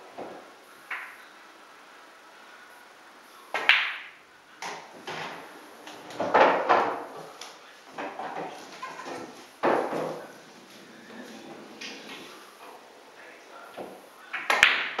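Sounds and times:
pool balls clicking together: 0:00.1 - 0:01.2, 0:03.5 - 0:12.8, 0:13.8 - 0:15.0
cue striking cue ball: 0:00.2 - 0:01.2, 0:03.6 - 0:07.2, 0:09.0 - 0:10.3, 0:13.8 - 0:15.0
balls knocking off cushions: 0:06.1 - 0:11.1
ball dropping into pocket: 0:14.4 - 0:15.0.

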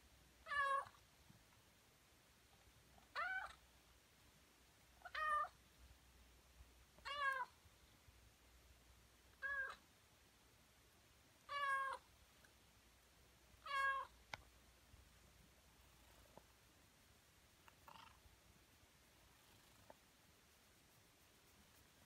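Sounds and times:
kitten meowing: 0:03.1 - 0:03.6, 0:05.0 - 0:05.6, 0:07.0 - 0:07.5, 0:09.4 - 0:09.8, 0:11.5 - 0:12.0, 0:13.6 - 0:14.1.

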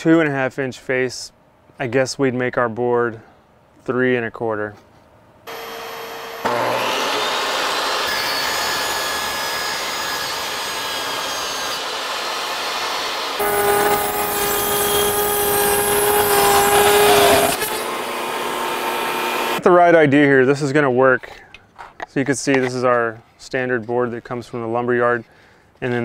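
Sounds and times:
table saw cutting board: 0:05.5 - 0:19.6.

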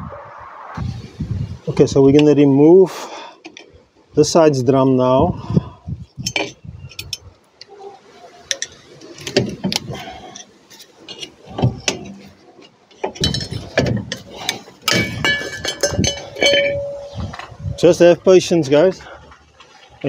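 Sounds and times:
metal clicks knocks and scrapes: 0:06.1 - 0:07.3, 0:08.4 - 0:17.8
short metallic ringing: 0:14.9 - 0:17.5.

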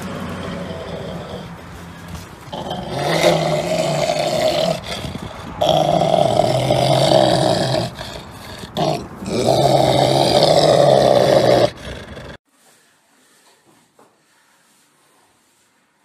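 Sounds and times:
dog growling: 0:00.0 - 0:12.4.

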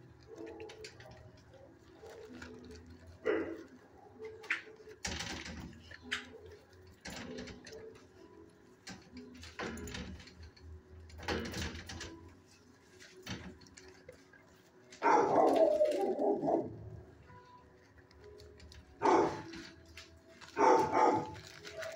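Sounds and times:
dogs barking: 0:00.2 - 0:05.0, 0:14.9 - 0:17.1, 0:19.0 - 0:19.8, 0:20.4 - 0:21.9.

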